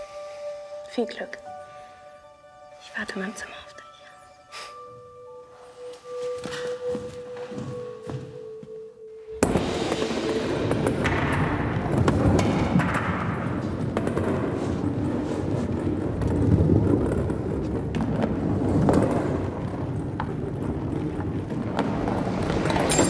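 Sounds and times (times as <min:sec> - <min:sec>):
balls clicking and knocking: 0:09.4 - 0:23.0
balls rolling on metal rails: 0:09.4 - 0:23.0.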